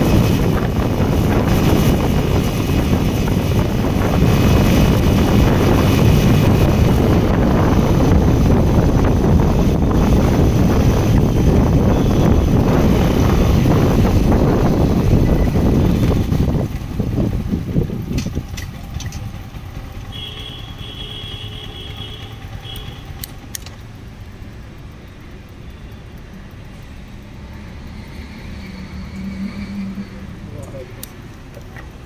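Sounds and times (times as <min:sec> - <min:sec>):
wind rush: 0:00.0 - 0:18.9
motorcycle engine: 0:00.0 - 0:32.0.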